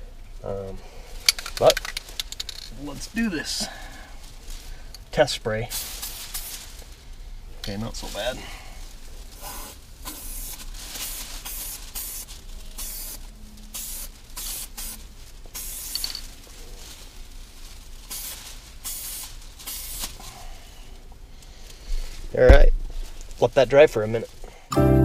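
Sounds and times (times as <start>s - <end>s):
aerosol spray hissing: 5.8s - 6.6s, 9.4s - 13.2s, 13.8s - 16.0s, 18.1s - 20.2s.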